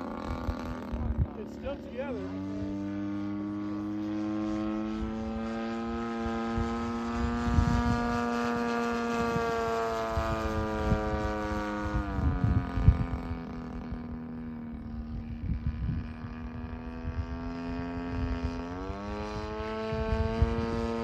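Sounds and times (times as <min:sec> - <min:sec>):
model plane engine at high throttle: 0:00.0 - 0:21.0
wind thumps on microphone: 0:10.1 - 0:13.3.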